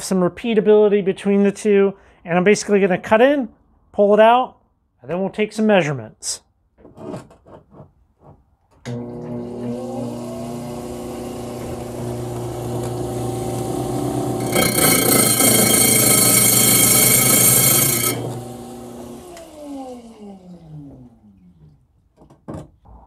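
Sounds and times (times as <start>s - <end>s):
blade grinding whine: 8.9s - 20.3s
saw motor humming: 8.9s - 20.7s.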